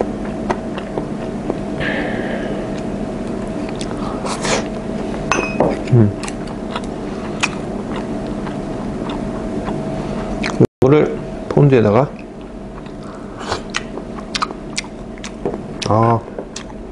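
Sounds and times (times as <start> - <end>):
machine hum: 0.0 - 16.9
person humming: 1.8 - 2.9, 5.9 - 6.2.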